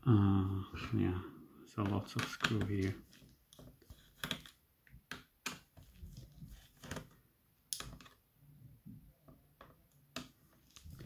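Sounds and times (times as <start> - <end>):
plastic laptop case clicks and taps: 3.5 - 5.9.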